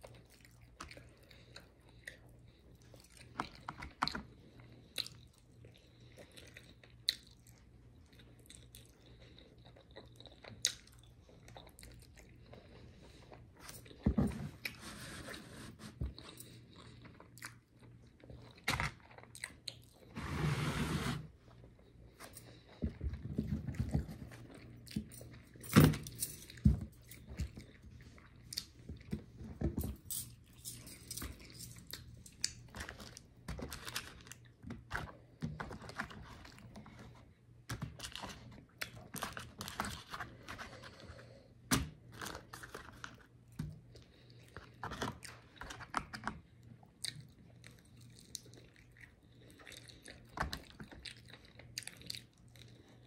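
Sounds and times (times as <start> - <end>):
bites crunching and chewing: 0.0 - 14.0, 16.1 - 20.1, 30.2 - 53.0.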